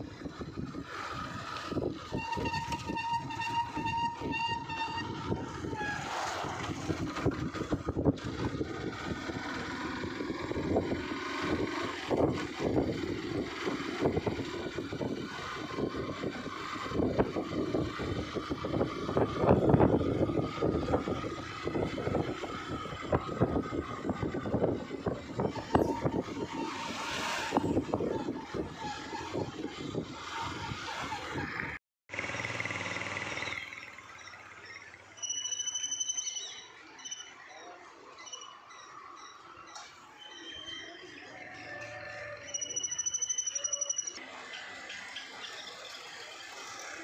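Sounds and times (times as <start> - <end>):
vehicle road and wind noise: 0.0 - 47.0
high horn-like tone: 2.1 - 6.0.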